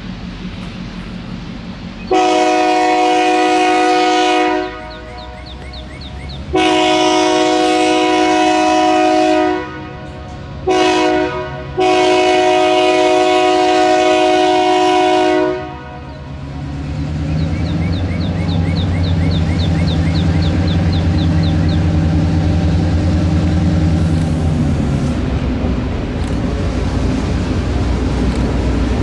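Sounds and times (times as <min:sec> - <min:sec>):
diesel engine rumble: 0:00.0 - 0:29.0
locomotive air horn blasts: 0:02.1 - 0:05.6, 0:06.5 - 0:16.5.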